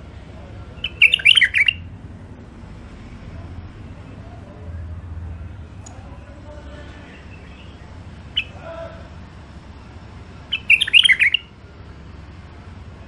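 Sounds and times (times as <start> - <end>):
bulbul calling: 0.8 - 1.9, 6.8 - 8.7, 10.5 - 11.5.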